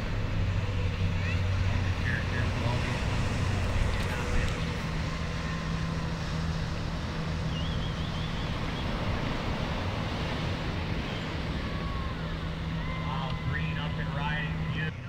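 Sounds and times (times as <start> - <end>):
low hum: 0.0 - 15.0
surf washing: 0.0 - 15.0
wind: 0.0 - 15.0
high wavering chirp: 5.2 - 9.2.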